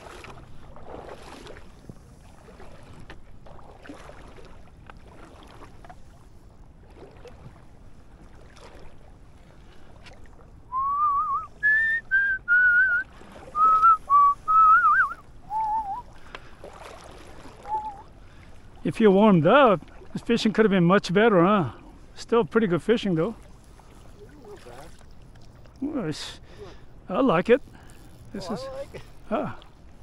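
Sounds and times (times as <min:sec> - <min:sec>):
faint wind: 0:00.0 - 0:30.0
water noise: 0:00.0 - 0:30.0
person whistling a tune: 0:10.7 - 0:13.0, 0:13.6 - 0:16.1, 0:17.6 - 0:18.1.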